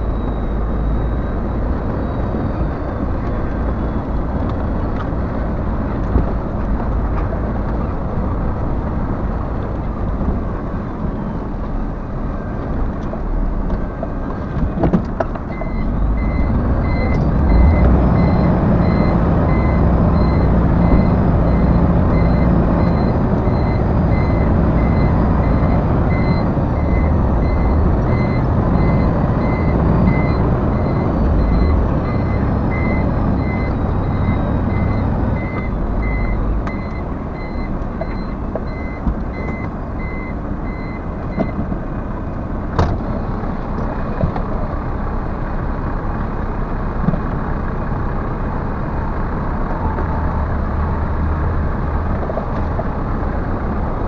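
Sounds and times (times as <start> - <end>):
truck reversing alarm beeping: 0.0 - 6.5, 15.5 - 41.6
diesel engine rumble: 0.0 - 54.0.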